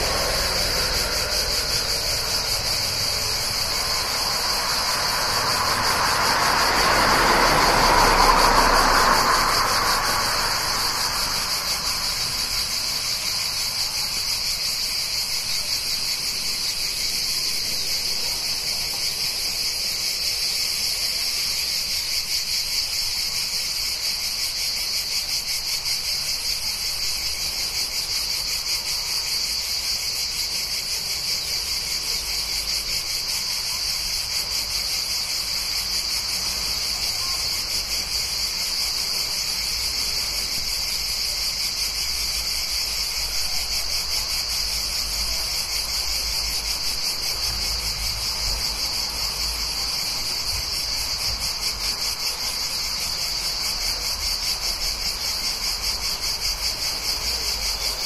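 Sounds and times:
cicadas buzzing: 0.0s - 58.0s
faint traffic rumble: 0.0s - 58.0s.

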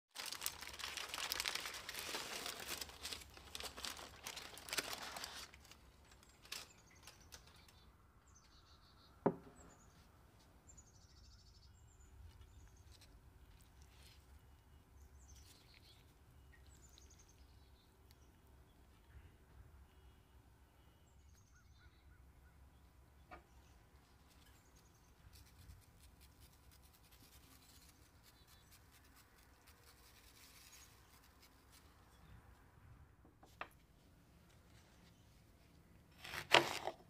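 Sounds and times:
aluminium foil crinkling: 0.1s - 7.8s, 24.1s - 32.1s, 36.1s - 37.0s
small birds chirping: 0.2s - 32.6s.

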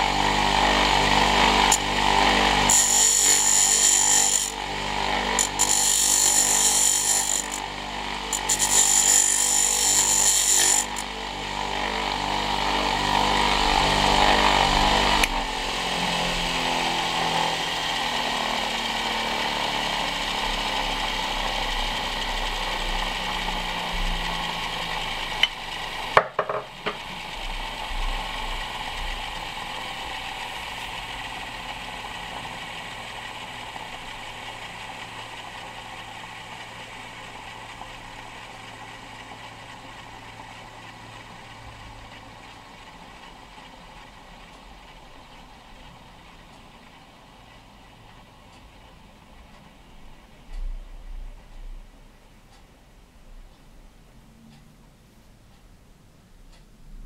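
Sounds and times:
cutting tool scraping spinning wood: 0.0s - 42.0s
lathe motor humming: 0.0s - 50.4s.

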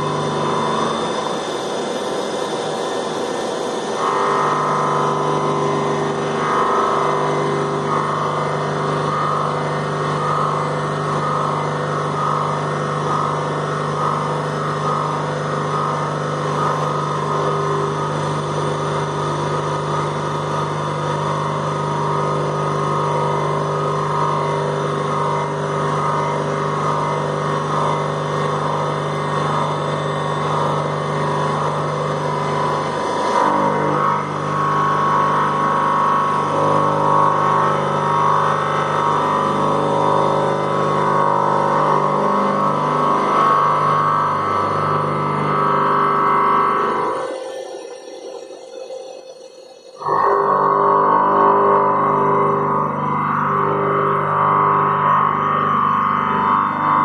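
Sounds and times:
milling machine spindle hum: 0.0s - 57.0s
wavering cutting whir: 0.0s - 57.0s.

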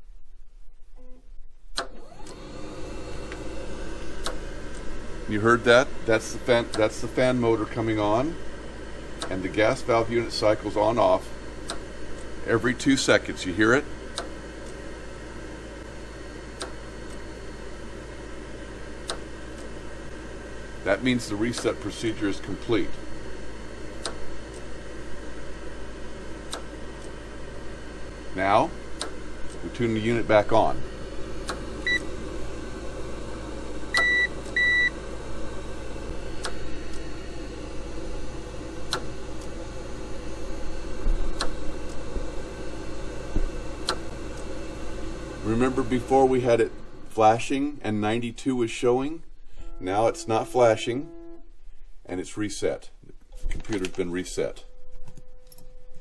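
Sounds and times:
water heater fan motor running: 1.7s - 52.0s
sharp click: 41.4s - 41.6s, 43.8s - 44.0s.

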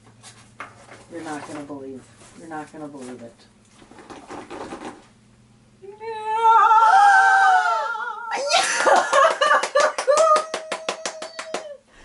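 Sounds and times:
rapid hand clapping: 8.7s - 11.8s.

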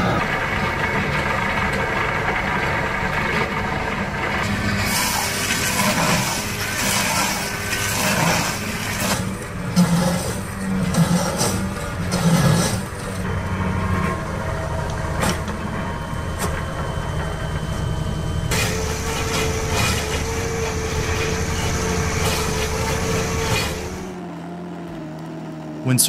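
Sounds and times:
heavy machine engine running: 0.0s - 26.0s
steady whine: 0.0s - 26.0s.

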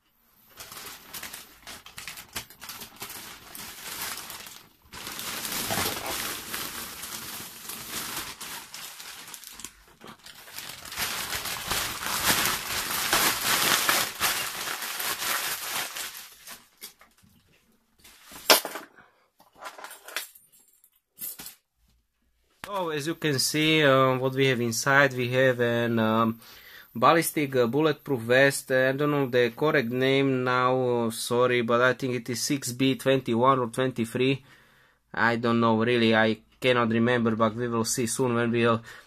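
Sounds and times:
plastic bag rustling and crinkling: 0.4s - 17.4s.

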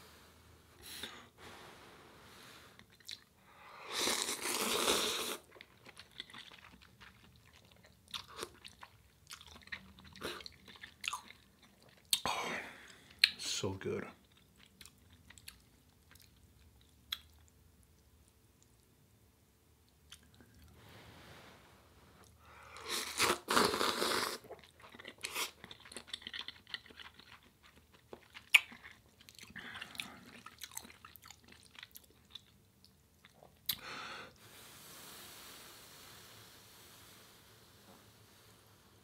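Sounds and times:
wet chewing and slurping noodles: 2.8s - 3.3s, 3.9s - 12.2s, 22.2s - 33.8s.

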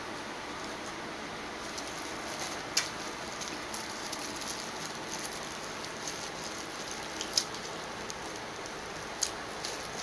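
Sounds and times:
electric fan hissing: 0.0s - 10.0s
gloved hands clicking and snapping: 6.0s - 10.0s.

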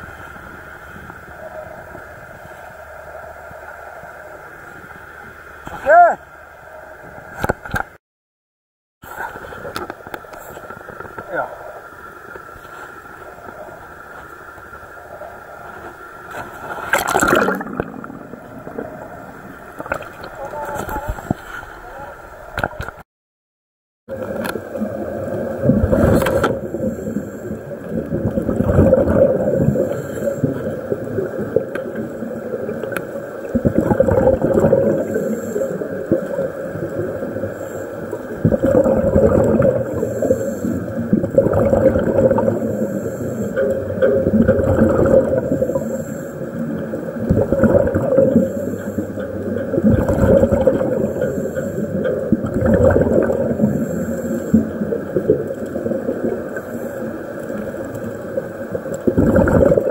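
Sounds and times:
rush of bubbles: 16.3s - 20.6s, 24.1s - 59.9s
diver breathing through regulator: 25.9s - 27.7s, 29.5s - 30.8s, 34.9s - 36.2s, 37.4s - 46.8s, 47.4s - 52.2s, 53.1s - 55.0s.

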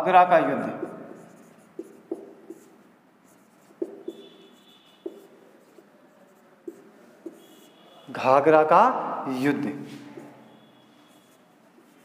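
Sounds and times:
marker pen writing on whiteboard: 0.4s - 8.2s, 9.8s - 12.0s
marker squeak: 0.8s - 5.9s, 6.6s - 8.1s, 10.0s - 12.0s.

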